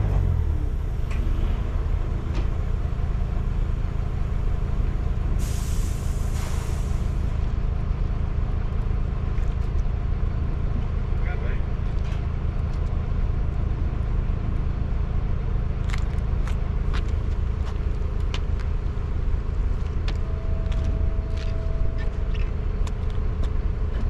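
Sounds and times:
heavy vehicle engine rumble: 0:00.0 - 0:24.0
air brakes hissing: 0:05.4 - 0:07.4.

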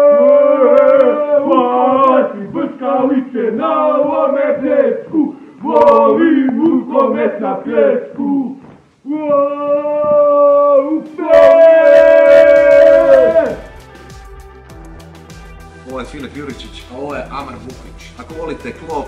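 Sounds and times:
men singing together: 0:00.7 - 0:08.5.

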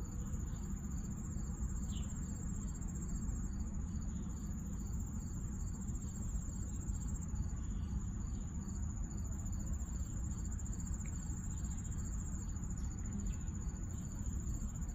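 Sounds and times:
insects trilling: 0:00.0 - 0:14.9
low steady rumble: 0:00.0 - 0:14.9.

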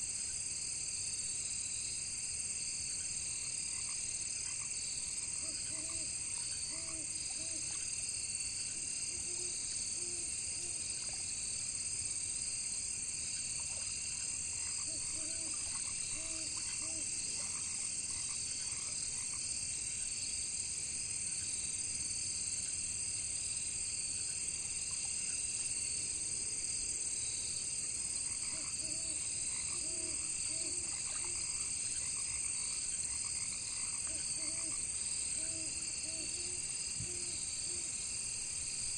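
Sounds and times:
crickets chirping: 0:00.0 - 0:38.9
frogs croaking: 0:03.6 - 0:11.4, 0:13.3 - 0:20.0, 0:28.1 - 0:38.9.

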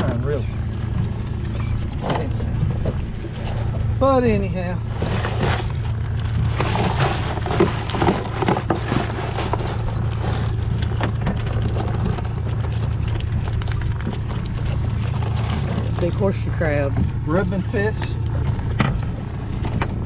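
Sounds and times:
outboard motor droning: 0:00.0 - 0:20.0
shrimp and fish clattering into tub: 0:04.8 - 0:20.0.

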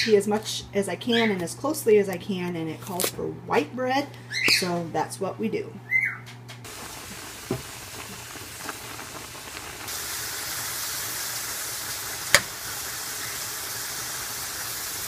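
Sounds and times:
ground beef sizzling in skillet: 0:06.7 - 0:15.0.

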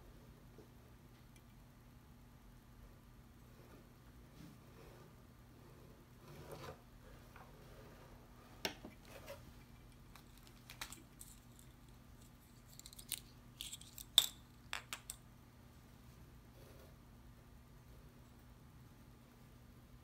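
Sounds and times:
small parts and tools clicking: 0:09.7 - 0:15.2.

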